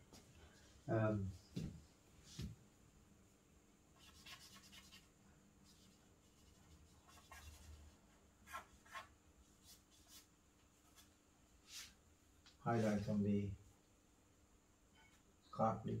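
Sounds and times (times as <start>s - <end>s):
charcoal scratching on paper: 4.0s - 11.1s.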